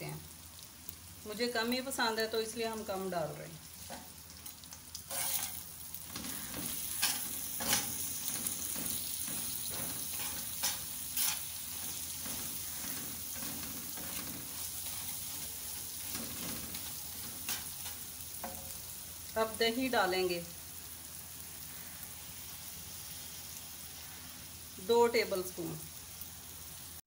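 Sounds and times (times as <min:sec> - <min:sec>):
meat sizzling on griddle: 0:00.0 - 0:27.0
spatula clacking on griddle: 0:05.0 - 0:18.8
metal spatula scraping griddle: 0:05.1 - 0:18.7.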